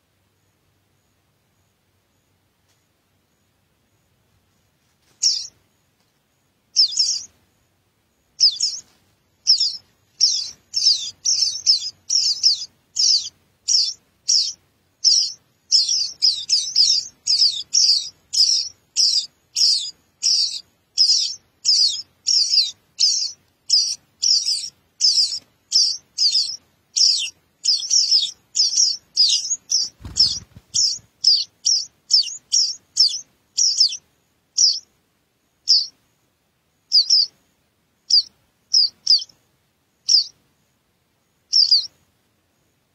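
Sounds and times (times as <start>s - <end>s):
nestlings begging chirps: 5.0s - 5.6s, 6.7s - 34.9s, 35.6s - 36.0s, 36.9s - 37.3s, 38.0s - 39.3s, 40.0s - 40.4s, 41.5s - 41.9s.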